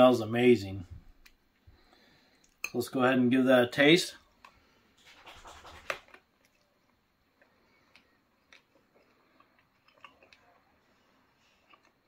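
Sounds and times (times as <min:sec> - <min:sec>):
quiet chewing: 0:04.3 - 0:12.0
biting into a sausage roll: 0:07.8 - 0:12.0.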